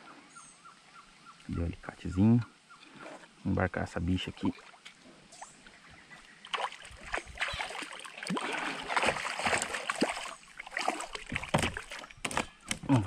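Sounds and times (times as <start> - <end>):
fish thrashing and splashing: 6.5 - 12.9
knocks against kayak hull: 11.3 - 12.9.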